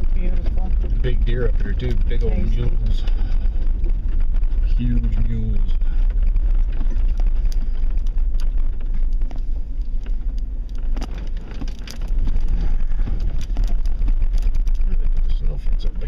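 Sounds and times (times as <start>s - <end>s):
rattles and knocks: 0.0s - 16.0s
vehicle driving rumble: 0.0s - 16.0s.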